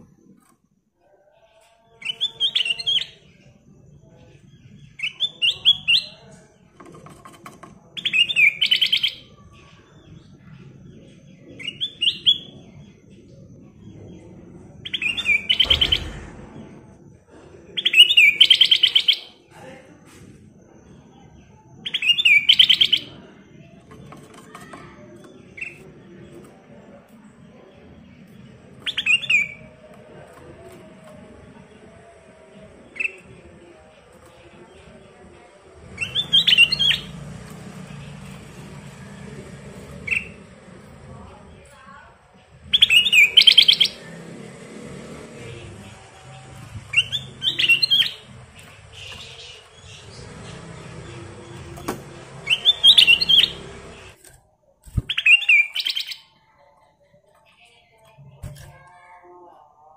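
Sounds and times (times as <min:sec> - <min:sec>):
bird singing bright phrases: 0:01.4 - 0:06.4, 0:08.0 - 0:16.7, 0:30.7 - 0:35.0, 0:35.9 - 0:41.8, 0:42.4 - 0:54.3, 0:54.9 - 0:59.0.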